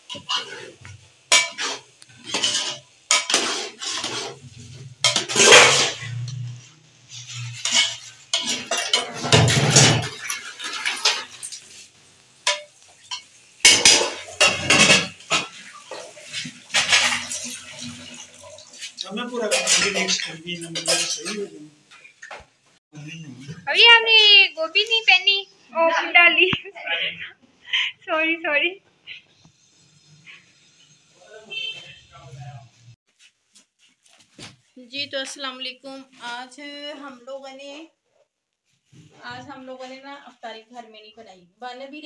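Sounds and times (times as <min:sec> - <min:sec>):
metal spoon scraping pot: 0:00.0 - 0:11.4, 0:19.4 - 0:21.5
utensils clinking against pots: 0:00.0 - 0:11.8, 0:12.4 - 0:22.4.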